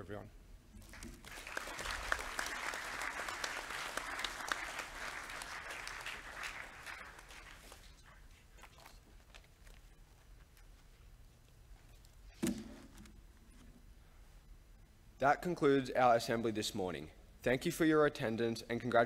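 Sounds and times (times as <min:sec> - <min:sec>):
audience applauding: 0:00.9 - 0:08.4.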